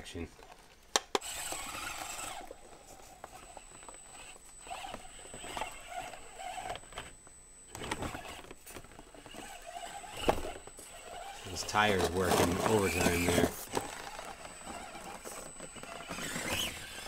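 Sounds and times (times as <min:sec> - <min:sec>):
toy car electric motor whining: 0:01.1 - 0:17.0
tires scrabbling on rocks: 0:10.9 - 0:17.0.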